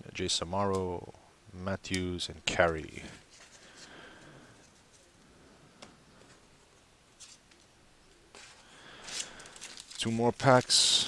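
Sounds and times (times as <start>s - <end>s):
trading cards handled: 1.9s - 3.9s, 7.2s - 10.8s.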